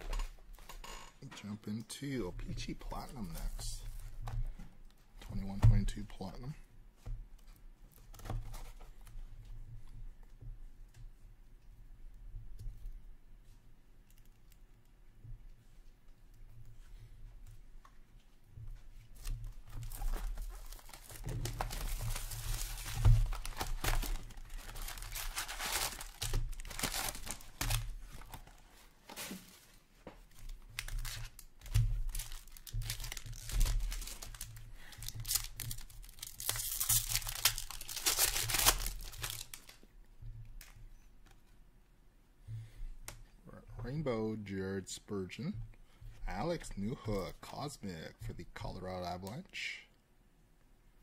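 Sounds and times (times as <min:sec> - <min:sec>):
foil packs tearing and crinkling: 0:19.8 - 0:28.4, 0:30.8 - 0:39.8.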